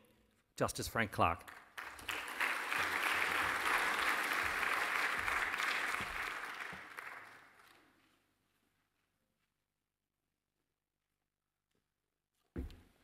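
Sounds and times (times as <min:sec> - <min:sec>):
audience applauding: 0:01.5 - 0:07.9.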